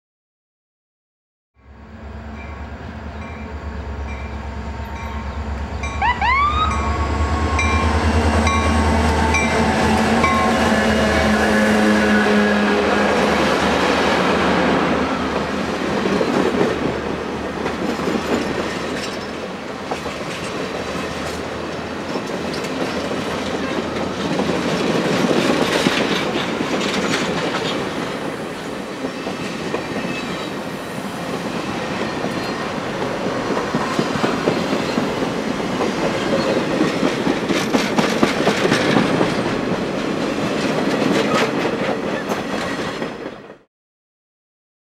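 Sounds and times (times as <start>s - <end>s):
locomotive engine drone: 1.6s - 15.8s
train wheels clattering over rail joints: 15.4s - 28.0s, 32.0s - 43.6s.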